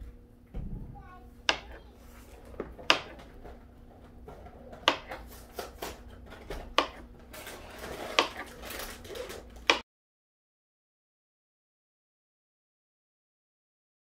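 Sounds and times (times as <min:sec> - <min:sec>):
knife knocking on cutting board: 0:02.6 - 0:03.2, 0:04.8 - 0:05.1
knife slicing banana: 0:04.8 - 0:06.0, 0:06.8 - 0:07.1.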